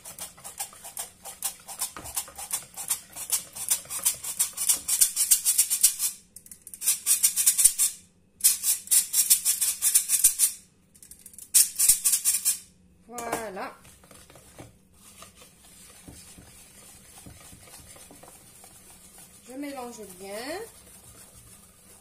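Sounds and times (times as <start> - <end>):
flour sifter rasping rattle: 13.9 - 22.0.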